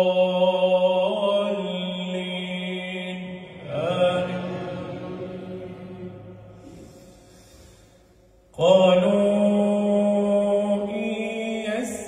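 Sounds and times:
man chanting through microphone: 0:08.5 - 0:12.0.

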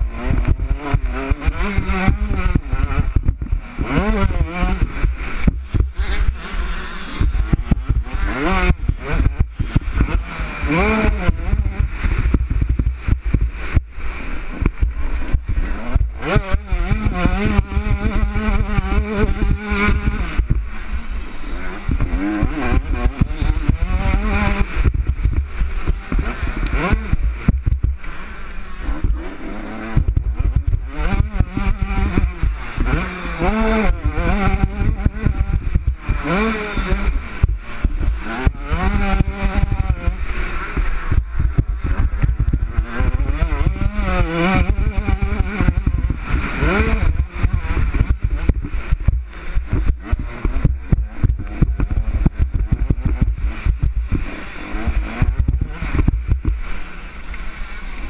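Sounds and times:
motocross bike engine revving: 0:00.0 - 0:58.0
wind buffeting microphone: 0:28.9 - 0:56.7.

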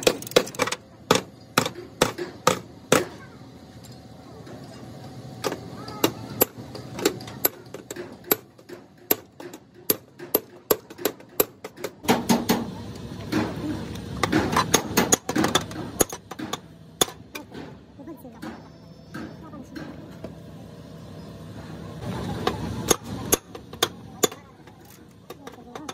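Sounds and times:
hammer striking chisel on metal: 0:00.0 - 0:03.2, 0:22.8 - 0:25.9.

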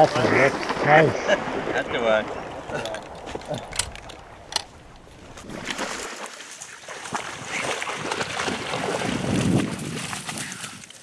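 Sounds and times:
dry reeds rustling and crackling: 0:02.3 - 0:06.7.

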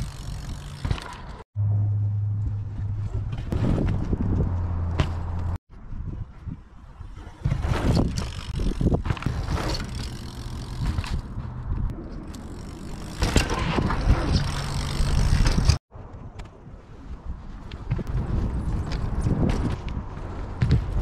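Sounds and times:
bike knocks and rattles: 0:00.0 - 0:01.4, 0:02.4 - 0:05.6, 0:07.0 - 0:15.8, 0:17.8 - 0:21.0
bike tyres on dirt: 0:00.0 - 0:01.4, 0:02.0 - 0:21.0
wind noise on microphone: 0:02.4 - 0:04.9, 0:05.7 - 0:09.8, 0:13.4 - 0:21.0.

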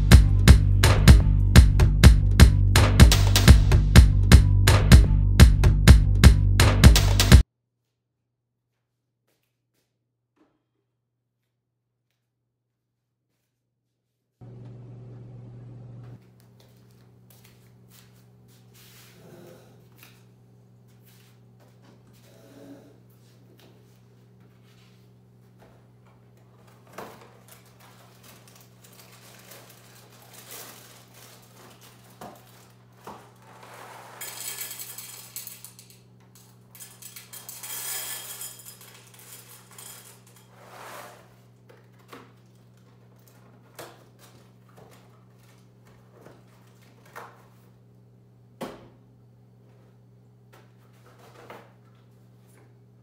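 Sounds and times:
steady low hum: 0:14.4 - 0:16.3
cereal pouring into a bowl: 0:33.8 - 0:35.9, 0:36.8 - 0:40.4.

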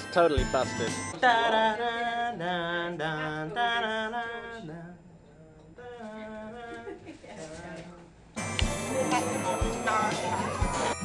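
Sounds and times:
slow chant-like singing: 0:01.2 - 0:08.0.

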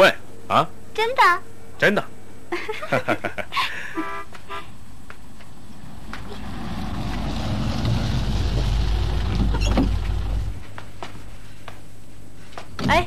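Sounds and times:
pickup truck engine rumble: 0:05.5 - 0:11.0.

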